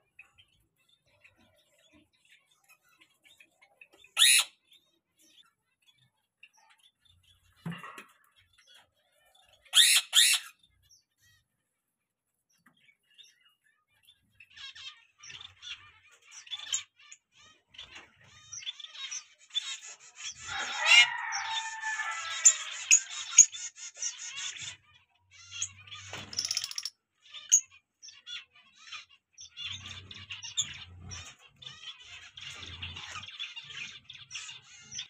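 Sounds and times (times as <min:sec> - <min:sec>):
finches chirping: 0:12.7 - 0:35.0.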